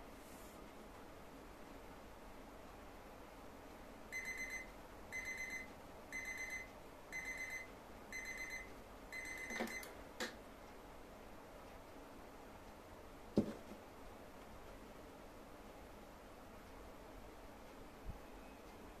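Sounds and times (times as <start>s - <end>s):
electronic alarm beeping: 4.1s - 9.9s.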